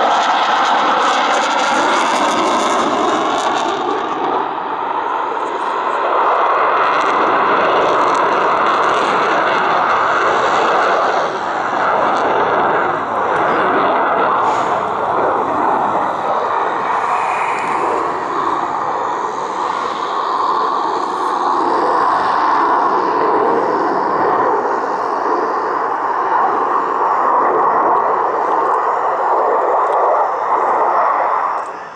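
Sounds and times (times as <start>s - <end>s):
jet engine rush: 0.0s - 31.9s
faint high whine: 10.9s - 31.9s.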